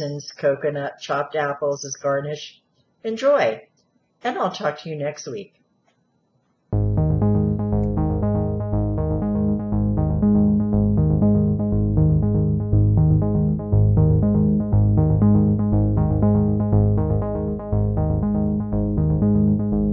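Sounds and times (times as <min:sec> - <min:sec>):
pulsing electronic music with bass: 0:06.8 - 0:19.9.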